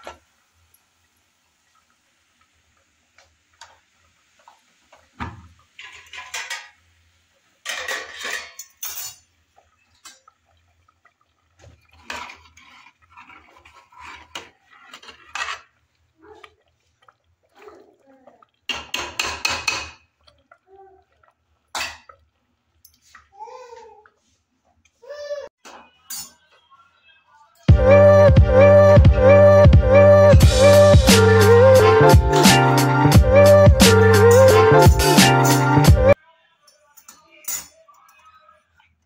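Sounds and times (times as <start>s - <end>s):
metal ladle scraping a pot: 5.8s - 6.8s, 7.6s - 17.9s.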